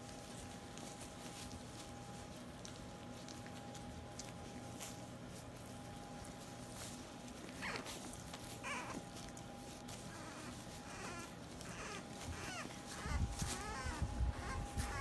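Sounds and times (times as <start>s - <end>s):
puppies chewing a sock: 0.0s - 15.0s
puppy whimpers and squeaks: 6.7s - 15.0s.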